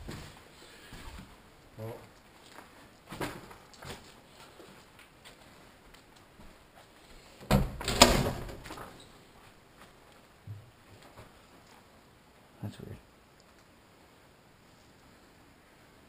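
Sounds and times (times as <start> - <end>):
footsteps on debris-strewn floor: 0.0 - 7.2, 8.6 - 10.3
wooden door banging and scraping open: 7.4 - 9.0.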